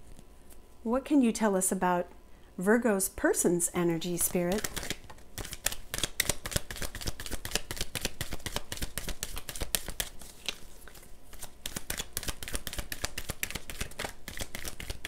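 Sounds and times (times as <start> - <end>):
cards being shuffled: 4.2 - 15.0.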